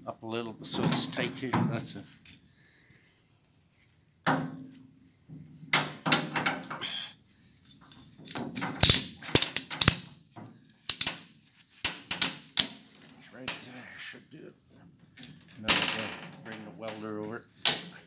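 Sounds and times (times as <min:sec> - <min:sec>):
soft knocks and handling noise: 0:03.7 - 0:06.8
ratchet strap clicking: 0:08.8 - 0:10.0.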